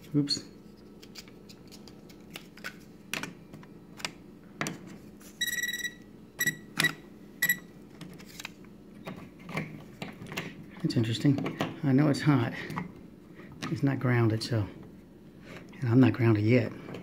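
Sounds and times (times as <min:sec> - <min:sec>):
voltage tester beeping: 0:05.4 - 0:07.7.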